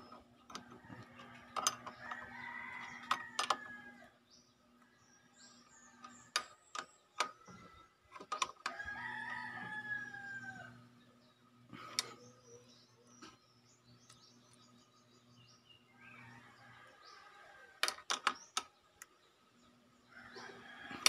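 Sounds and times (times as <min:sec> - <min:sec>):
rooster crowing: 0:00.8 - 0:04.2, 0:08.7 - 0:10.9, 0:16.0 - 0:17.8, 0:20.1 - 0:21.0.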